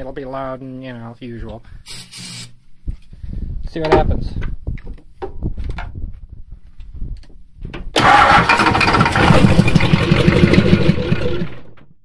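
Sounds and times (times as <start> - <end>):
diesel engine starting and running: 7.9 - 12.0.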